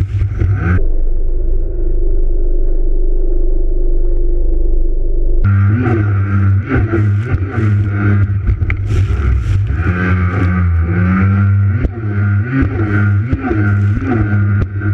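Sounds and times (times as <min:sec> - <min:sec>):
low drone: 0:00.0 - 0:14.9
jet ski engine running: 0:05.5 - 0:14.9.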